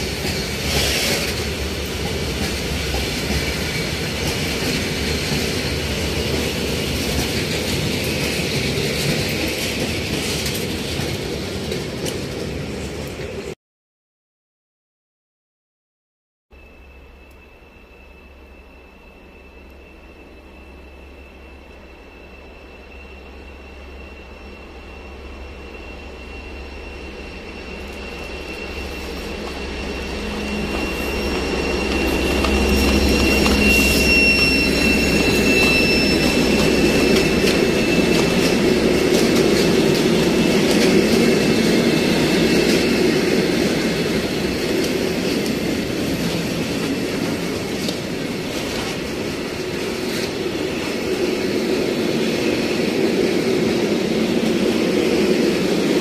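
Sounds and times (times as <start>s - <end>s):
diesel locomotive engine rumble: 0.0s - 13.6s, 16.5s - 56.0s
high wheel squeal: 16.6s - 56.0s
freight wagons rolling by: 27.6s - 50.4s.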